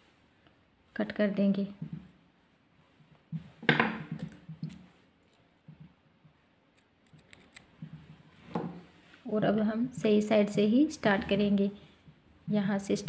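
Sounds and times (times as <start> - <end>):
crochet handling noise: 2.8 - 9.3
scissors snipping yarn: 6.7 - 7.7.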